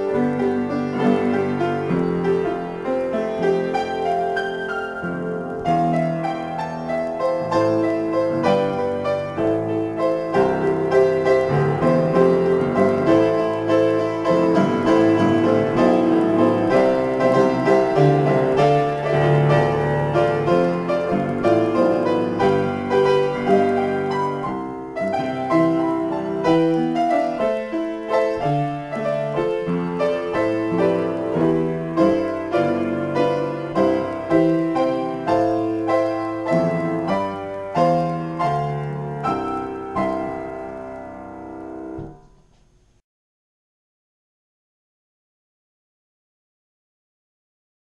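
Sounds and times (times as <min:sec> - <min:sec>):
acoustic piano improvisation: 0:00.0 - 0:43.0.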